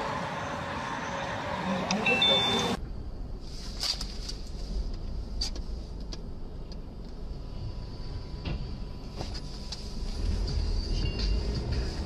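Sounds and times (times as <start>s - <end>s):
low vehicle rumble: 0.0s - 12.0s.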